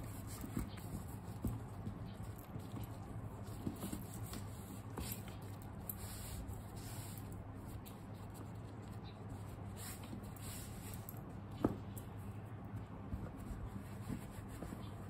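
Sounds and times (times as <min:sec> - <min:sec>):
low steady hum: 0:00.0 - 0:15.0
cloth rubbing on leather: 0:13.4 - 0:15.0.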